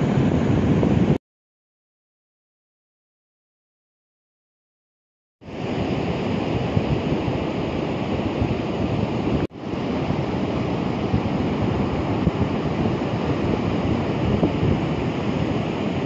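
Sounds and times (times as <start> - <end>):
ocean surf breaking: 0.0 - 1.2, 5.4 - 16.0
wind buffeting microphone: 0.0 - 1.2, 5.5 - 16.0.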